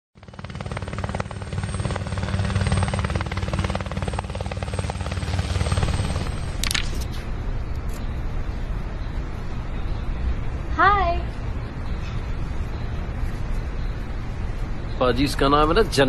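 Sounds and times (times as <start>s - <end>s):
helicopter rotor chopping: 0.2s - 7.1s.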